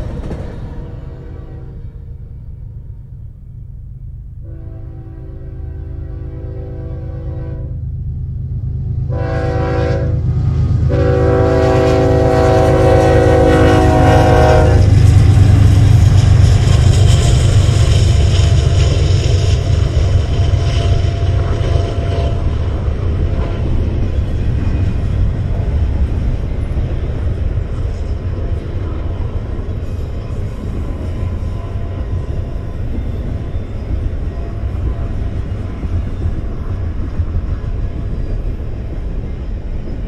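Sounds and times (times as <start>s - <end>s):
diesel locomotive engines passing: 0.0s - 40.0s
steel wheels rumbling on rails: 0.0s - 40.0s
locomotive air horn: 0.8s - 2.0s, 4.4s - 7.8s, 9.1s - 15.0s.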